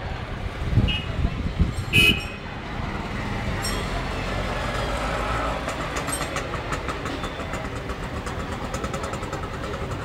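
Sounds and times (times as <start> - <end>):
vehicle engine idling: 5.5 - 10.0.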